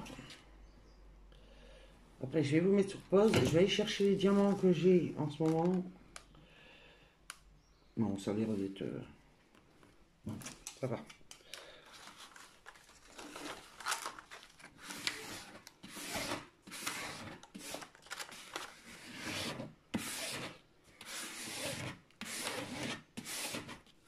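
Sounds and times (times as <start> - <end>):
plastic sheet rustling: 11.6 - 19.0.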